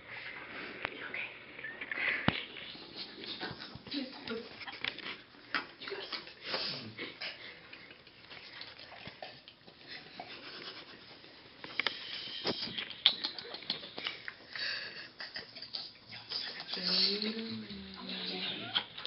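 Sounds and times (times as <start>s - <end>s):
sniffs: 6.4s - 7.0s, 10.3s - 12.8s
stifled snickers: 12.6s - 16.0s.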